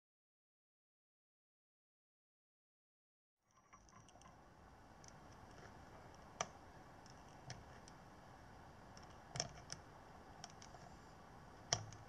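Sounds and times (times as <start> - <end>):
faint hiss: 3.5 - 12.0
probe tips clicking on metal: 9.0 - 11.0, 11.6 - 12.0.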